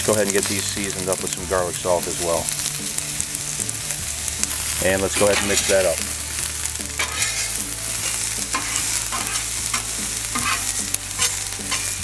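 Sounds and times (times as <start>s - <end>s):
vegetables sizzling on griddle: 0.0s - 12.0s
metal spatula scraping: 4.6s - 6.1s, 6.9s - 12.0s.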